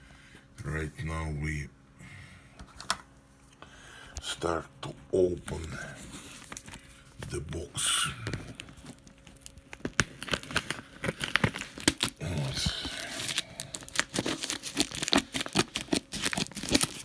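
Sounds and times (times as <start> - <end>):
paper tearing and crumpling: 5.5 - 17.0.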